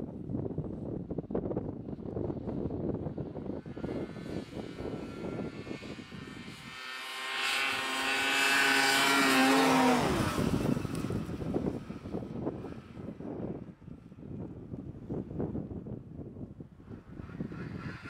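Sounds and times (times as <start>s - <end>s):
wind buffeting microphone: 0.0s - 18.0s
snowmobile engine passing: 1.9s - 14.1s, 16.9s - 18.0s.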